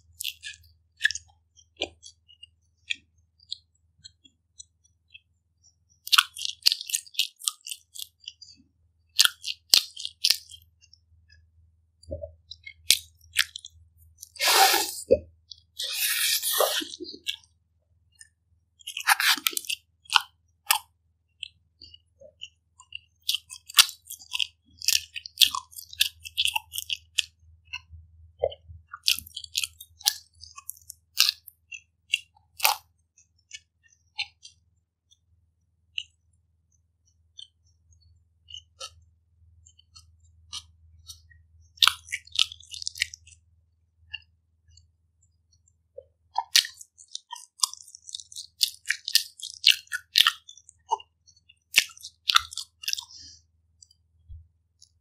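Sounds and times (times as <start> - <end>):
chewing pizza crust: 0.0 - 35.3, 35.9 - 36.4, 37.0 - 55.0
wet mouth clicks: 0.2 - 5.2, 6.0 - 8.5, 12.0 - 17.5, 18.2 - 32.9, 33.5 - 34.6, 37.4 - 39.0, 39.7 - 43.4, 46.0 - 55.0.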